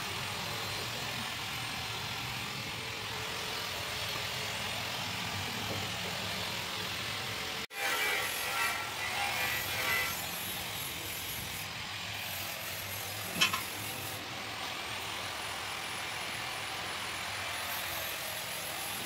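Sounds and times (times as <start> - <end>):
steady background noise: 0.0 - 19.0.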